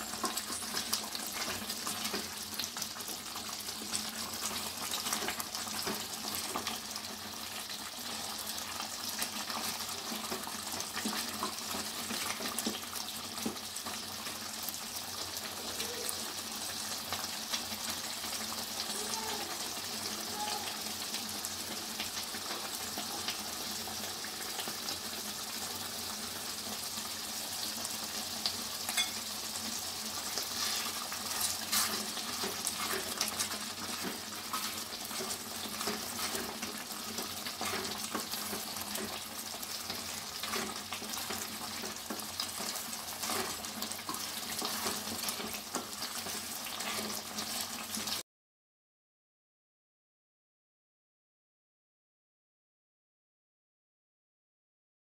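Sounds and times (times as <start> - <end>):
tomatoes sizzling in oil: 0.0 - 48.2
spatula stirring and scraping: 0.1 - 3.1, 30.1 - 48.1.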